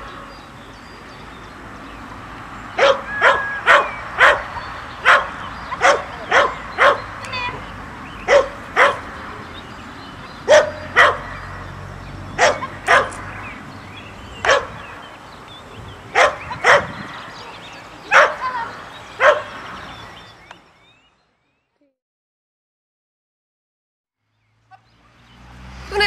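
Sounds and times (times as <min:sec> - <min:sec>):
small dog barking: 0:02.8 - 0:07.1, 0:08.3 - 0:09.1, 0:10.4 - 0:11.4, 0:12.4 - 0:13.2, 0:14.4 - 0:14.8, 0:16.1 - 0:17.0, 0:18.1 - 0:18.5, 0:19.2 - 0:19.5.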